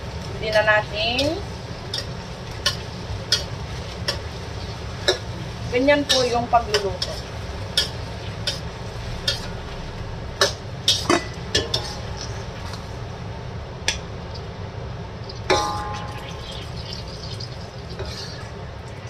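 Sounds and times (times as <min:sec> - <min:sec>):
low hum: 0:07.2 - 0:19.0
metal spatula scraping a wok: 0:10.4 - 0:13.0, 0:17.9 - 0:18.6
sharp metal clanks: 0:15.5 - 0:16.2.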